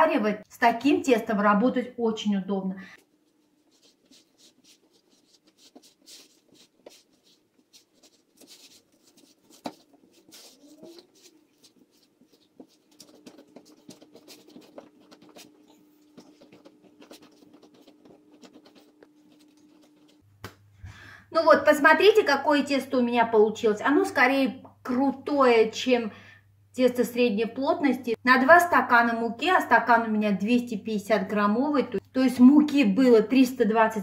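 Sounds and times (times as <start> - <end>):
faint low hum: 0.5 - 21.9
hands kneading dough: 2.9 - 20.6.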